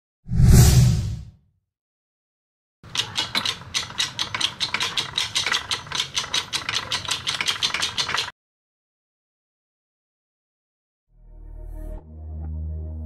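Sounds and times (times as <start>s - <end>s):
fast mechanical clicking: 2.8s - 8.3s.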